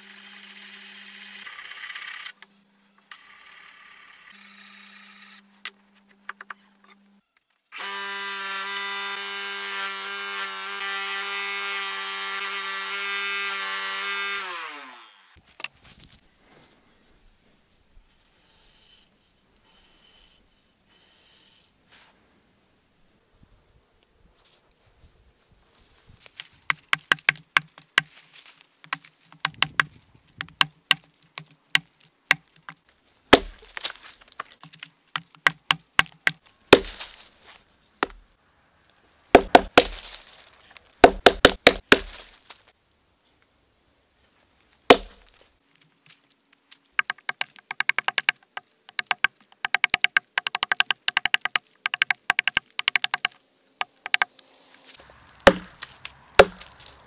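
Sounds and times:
axe chopping into log: 33.4 - 33.8, 35.2 - 37.1, 39.4 - 40.1, 41.0 - 42.2, 44.9 - 45.2, 55.4 - 56.8.

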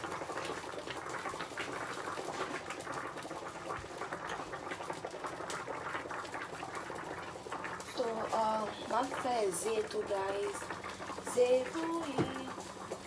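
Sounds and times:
water boiling and bubbling: 0.0 - 13.0.

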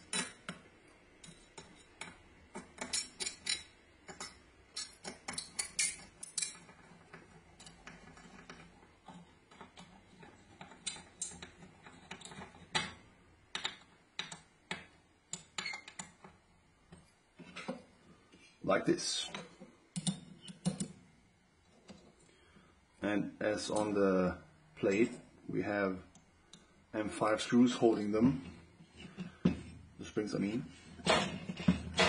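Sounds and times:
metal pieces knocking: 1.3 - 8.6.

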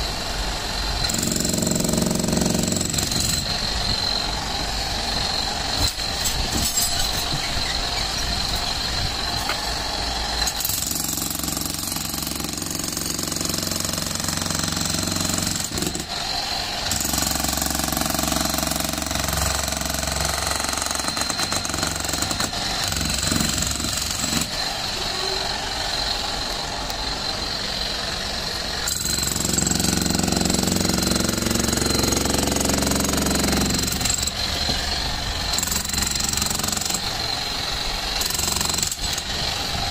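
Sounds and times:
demolition hammer chiselling concrete: 1.0 - 4.3, 5.2 - 25.3, 28.8 - 39.9.

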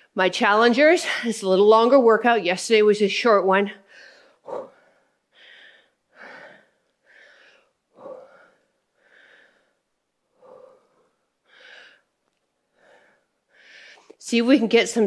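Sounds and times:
woman breathing hard: 3.8 - 14.2.

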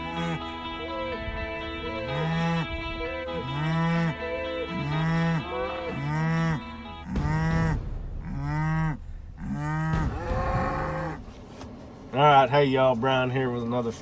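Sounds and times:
cattle mooing: 0.0 - 1.2, 1.8 - 11.3.

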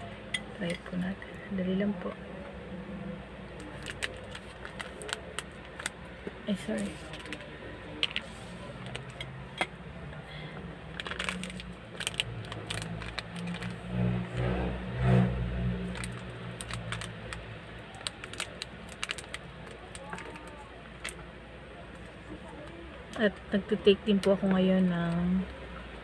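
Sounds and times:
low rumble: 10.9 - 17.7.

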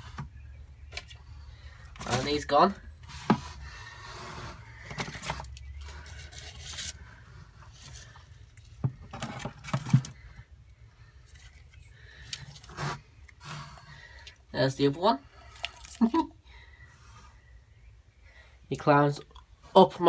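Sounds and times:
scraping against a plastic bin: 1.9 - 8.2, 8.8 - 10.4, 12.4 - 13.9.

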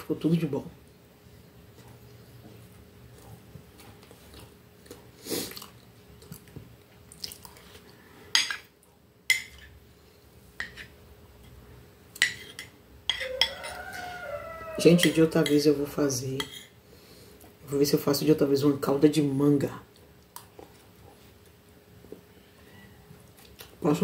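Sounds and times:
soft chewing: 1.4 - 9.1, 19.8 - 23.8.

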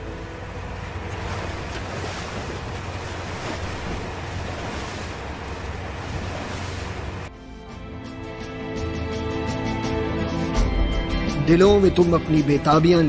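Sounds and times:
sea water rushing along hull: 0.0 - 7.3
wind buffeting microphone: 0.1 - 7.3.

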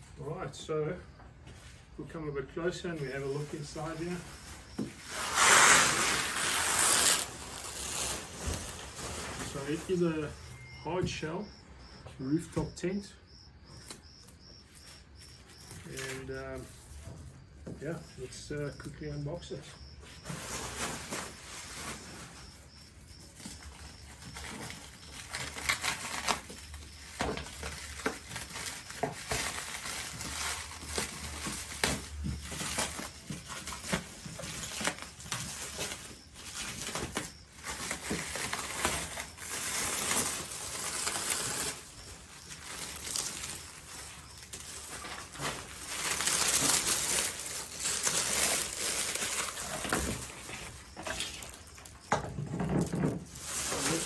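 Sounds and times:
plastic wrap crinkling: 2.8 - 10.6, 20.2 - 54.0.

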